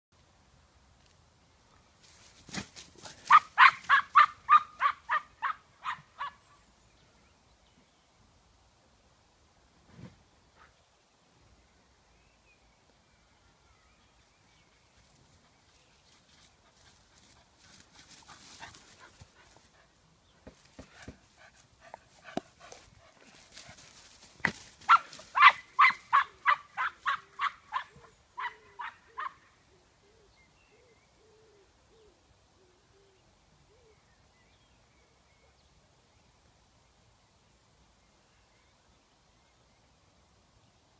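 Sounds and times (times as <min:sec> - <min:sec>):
rustling through long grass: 0:00.9 - 0:04.2, 0:14.9 - 0:19.9, 0:20.6 - 0:27.4
dog barking: 0:03.3 - 0:06.4, 0:24.9 - 0:29.4.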